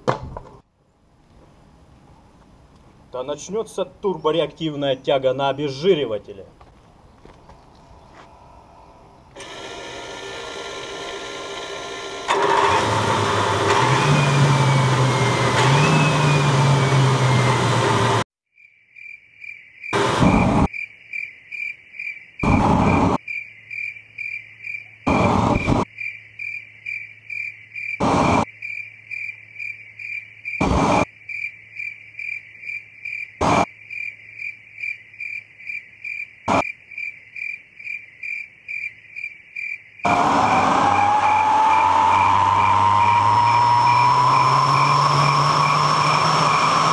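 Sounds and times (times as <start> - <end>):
small turbine engine whining: 8.6 - 18.2, 40.1 - 46.9
sharp loud bursts: 20.0 - 20.7.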